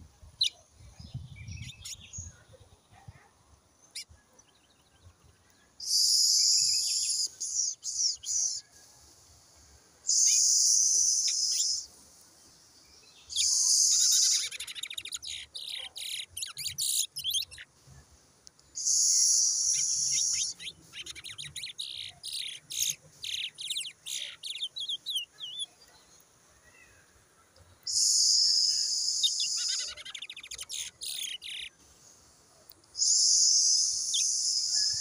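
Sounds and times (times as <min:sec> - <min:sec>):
finch chirping: 0:13.3 - 0:17.6, 0:18.8 - 0:25.7, 0:27.9 - 0:31.7.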